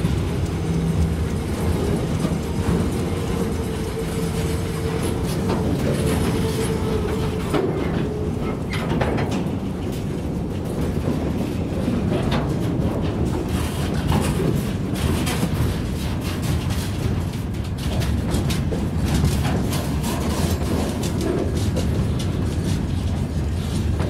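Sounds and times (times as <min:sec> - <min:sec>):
freight train wheels rumbling: 0:00.0 - 0:24.0.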